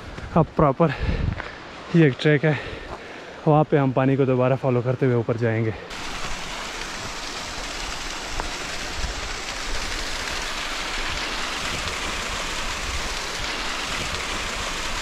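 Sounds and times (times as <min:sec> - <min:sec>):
stream and waterfall rushing: 0:05.8 - 0:15.0.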